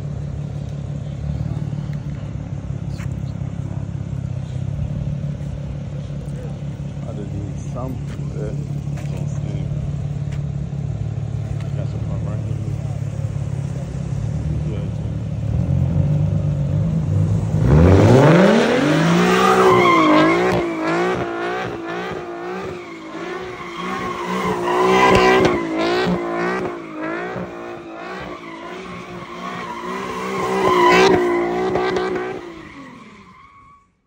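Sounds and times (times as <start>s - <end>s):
car engine revving: 0.0s - 33.6s
tyres squealing on asphalt: 17.1s - 34.0s.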